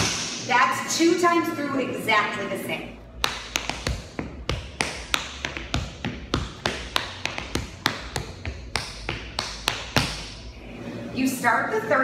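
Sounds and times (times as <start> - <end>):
tap shoes on hard floor: 3.2 - 10.4.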